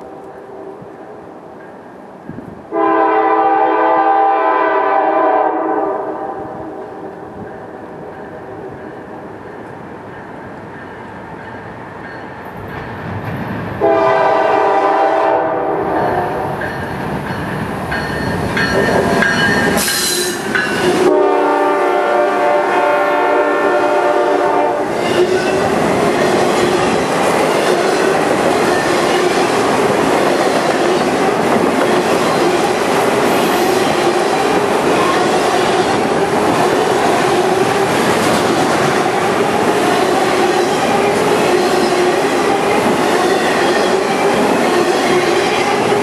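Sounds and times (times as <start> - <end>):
locomotive horn blasts: 2.7 - 7.0, 13.8 - 16.4, 20.9 - 25.3
train cars rumbling and clattering: 6.1 - 46.0.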